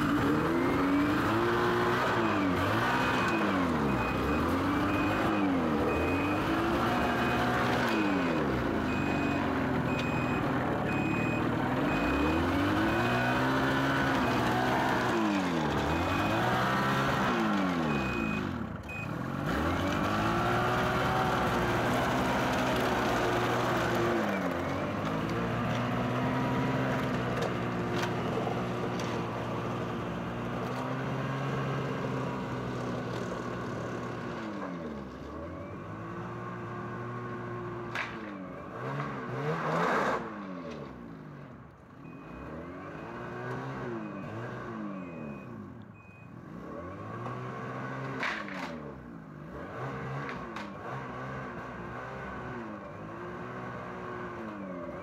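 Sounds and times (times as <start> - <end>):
snowmobile engine revving: 0.0 - 37.9, 42.2 - 45.6
high repeating beep: 3.0 - 8.2, 8.9 - 13.2, 17.9 - 19.2.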